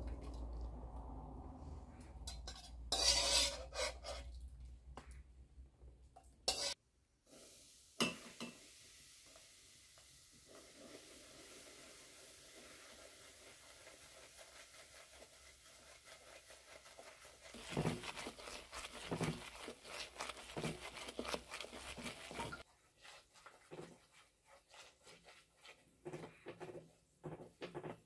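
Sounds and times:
spoon scraping metal pot: 2.0 - 4.4, 6.5 - 6.8, 14.5 - 26.9
faint hiss: 7.2 - 15.4.

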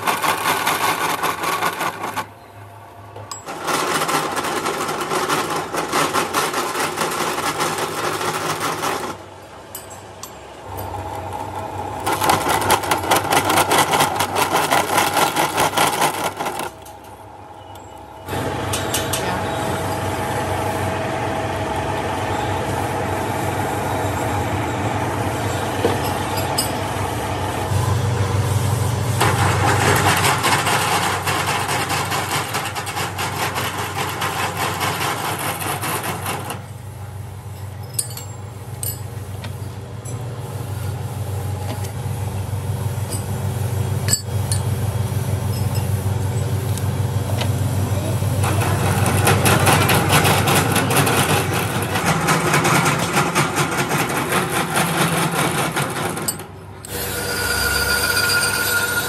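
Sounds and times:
workshop machinery rattling: 0.0 - 59.0
voices: 18.8 - 20.6, 46.4 - 51.1.

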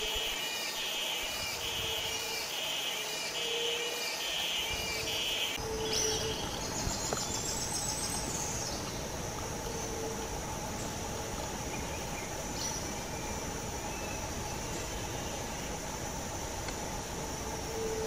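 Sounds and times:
high pulsing chirr: 0.0 - 6.8
outdoor background noise: 0.0 - 18.0.

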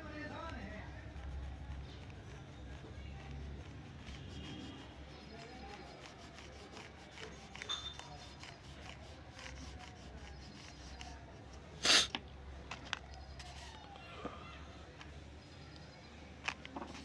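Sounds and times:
colouring strokes on paper: 0.0 - 12.1, 13.3 - 14.0, 16.8 - 17.0
loud scrape on paper: 3.6 - 11.2.

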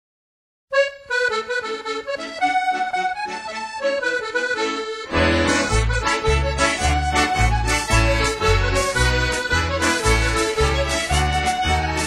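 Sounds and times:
melodic tune: 0.9 - 12.0.

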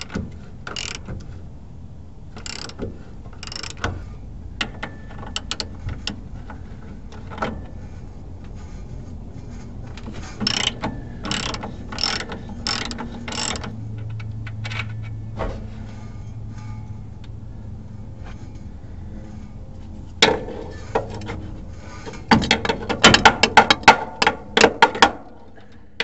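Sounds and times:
ratchet wrench clicking: 0.0 - 1.1, 2.4 - 2.8, 3.4 - 3.9, 10.4 - 15.0.

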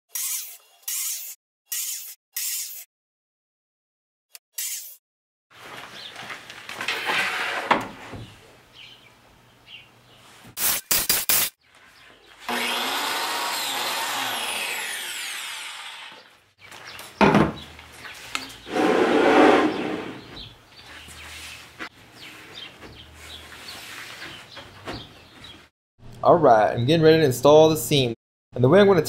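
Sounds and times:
biscuit joiner motor and blade: 0.1 - 2.9, 12.4 - 16.3.

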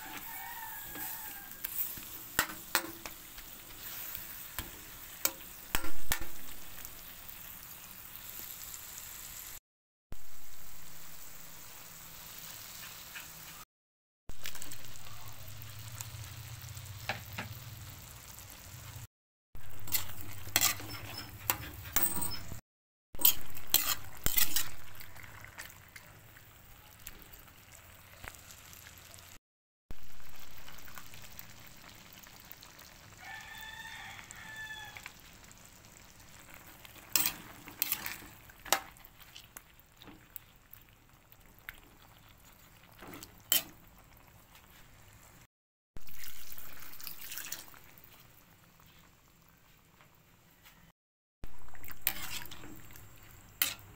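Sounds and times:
metal spatula scraping a wok: 0.0 - 6.2, 19.6 - 22.6, 23.2 - 25.7, 36.5 - 39.3, 43.0 - 43.8, 51.8 - 53.9
meat sizzling in a wok: 0.0 - 13.7, 14.3 - 21.7, 23.2 - 50.3, 51.4 - 53.9.

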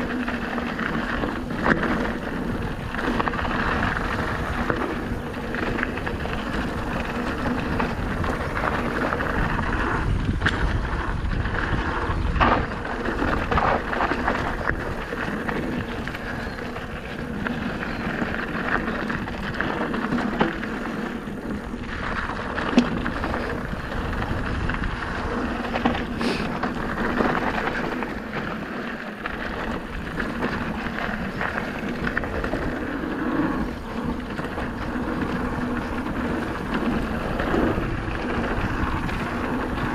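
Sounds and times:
tyres rolling over gravel: 0.0 - 39.9
wind on microphone: 0.0 - 39.9
bike knocking over bumps: 11.6 - 39.9.

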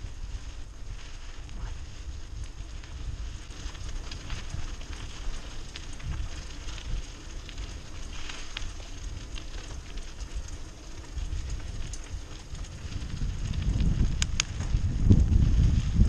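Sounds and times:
bike tyres crunching on gravel: 0.0 - 16.0
low rumble: 0.0 - 16.0.

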